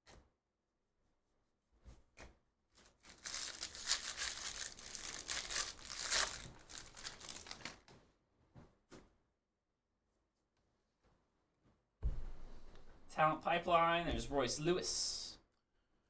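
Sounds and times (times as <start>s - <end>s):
cards rustling: 2.8s - 7.8s
foil wrapper crinkling: 2.8s - 7.8s.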